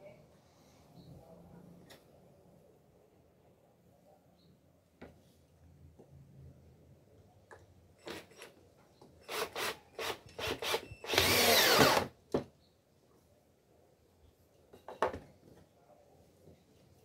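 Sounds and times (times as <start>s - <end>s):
cordless drill boring into wood: 9.2s - 12.1s.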